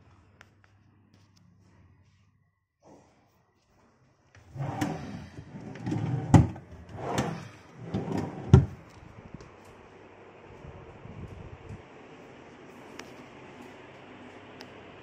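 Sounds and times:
wooden drawers sliding: 0:04.5 - 0:08.8
drawer closing knock: 0:08.0 - 0:08.8.

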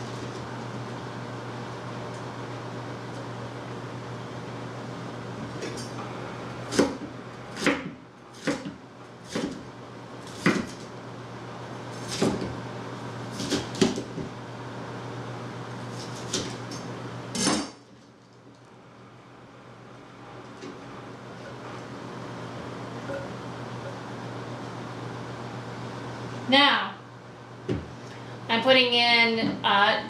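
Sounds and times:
knife chopping on plastic board: 0:06.7 - 0:09.6, 0:10.3 - 0:10.8.

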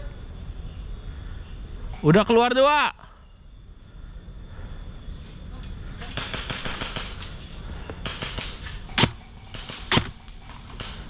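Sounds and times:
airsoft gun shots: 0:08.0 - 0:11.0.

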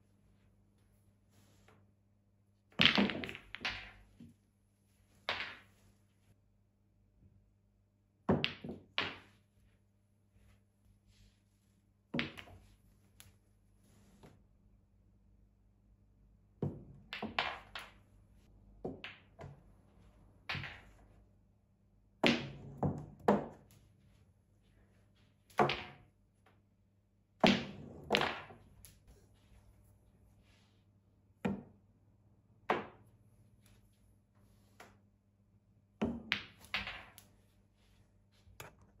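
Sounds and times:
snooker balls colliding: 0:02.8 - 0:04.3, 0:05.2 - 0:05.7, 0:08.3 - 0:09.4, 0:12.2 - 0:12.7, 0:16.7 - 0:18.1, 0:20.5 - 0:21.1, 0:22.2 - 0:23.7, 0:25.5 - 0:26.1, 0:27.4 - 0:29.0, 0:36.0 - 0:37.3.

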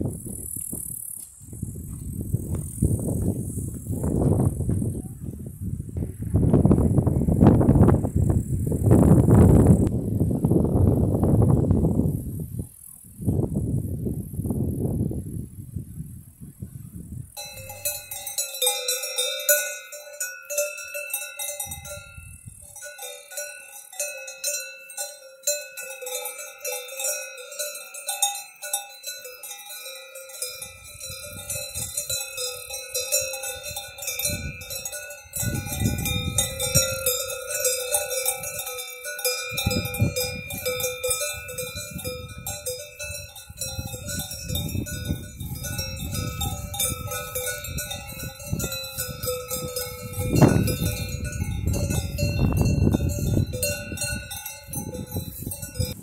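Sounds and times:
cowbells ringing and clanking: 0:17.4 - 0:56.0.

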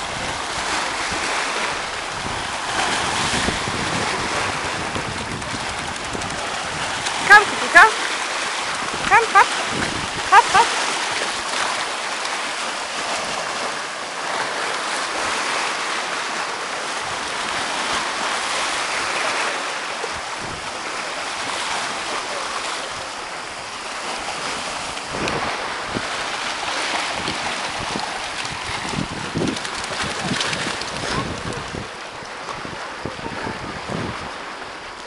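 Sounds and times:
wind buffeting microphone: 0:00.0 - 0:11.8, 0:20.0 - 0:21.9, 0:24.1 - 0:35.0
surf washing over rocks: 0:00.0 - 0:35.0.

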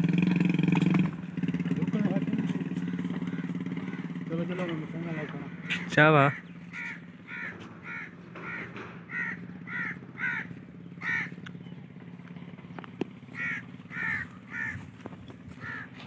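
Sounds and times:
crow cawing: 0:02.6 - 0:11.4, 0:13.3 - 0:16.0.

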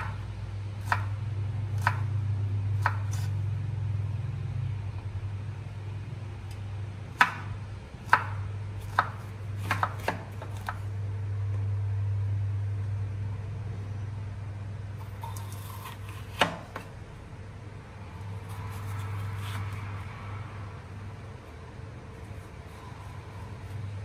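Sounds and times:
steady low hum: 0:00.0 - 0:24.0
knife chopping on wooden board: 0:01.8 - 0:02.0, 0:02.8 - 0:03.3, 0:07.2 - 0:10.8, 0:15.2 - 0:16.9.

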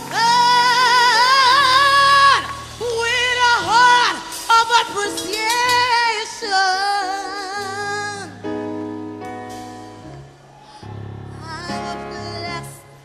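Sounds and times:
person singing gospel with vibrato: 0:00.0 - 0:08.6.

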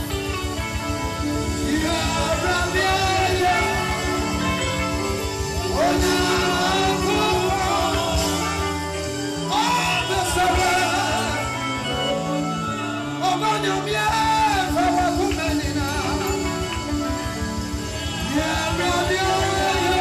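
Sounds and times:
band backing with bass: 0:00.0 - 0:20.0
woman singing gospel song: 0:05.6 - 0:12.3, 0:18.2 - 0:20.0.

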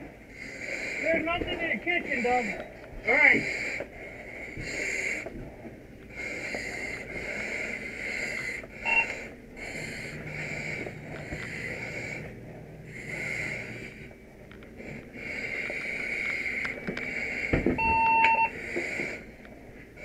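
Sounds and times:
hissing breaths through regulator: 0:00.0 - 0:20.0
short beep: 0:08.9 - 0:09.1, 0:17.8 - 0:18.5.

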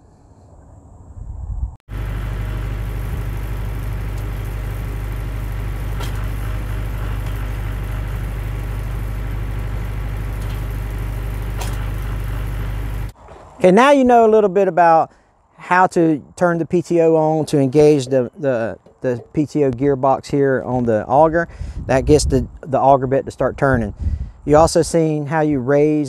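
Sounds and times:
tractor diesel engine running: 0:01.9 - 0:13.9.

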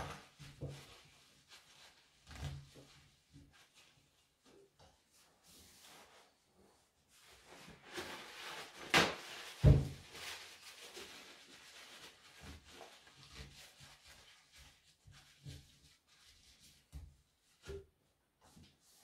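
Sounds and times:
paper rustling: 0:07.3 - 0:15.5
paper towel tearing: 0:07.7 - 0:14.1.

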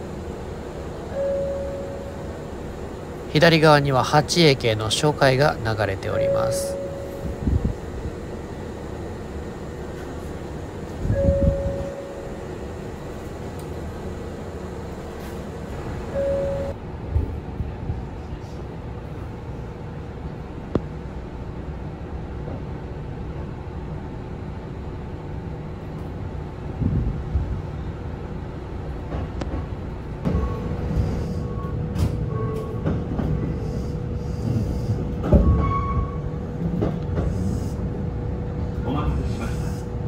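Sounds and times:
low train rumble: 0:00.0 - 0:40.0
short single-pitch tones: 0:01.1 - 0:02.4, 0:06.2 - 0:07.4, 0:11.1 - 0:12.4, 0:16.1 - 0:16.8
onboard equipment hum: 0:06.1 - 0:14.9.

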